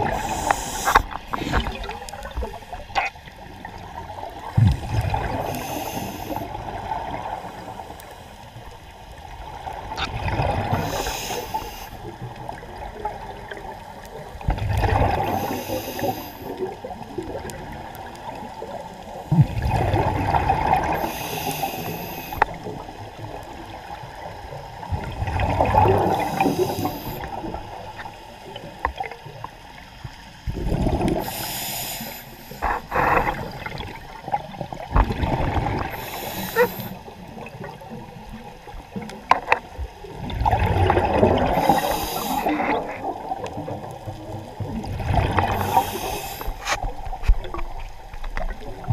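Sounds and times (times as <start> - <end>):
regulator inhale hiss: 0.0 - 1.7, 5.3 - 6.6, 10.7 - 12.1, 15.2 - 16.6, 20.9 - 22.6, 26.1 - 27.3, 31.2 - 33.6, 35.9 - 37.0, 41.6 - 42.6, 45.5 - 46.8
exhaled bubbles rumbling: 0.0 - 7.8, 8.6 - 31.4, 32.6 - 48.9.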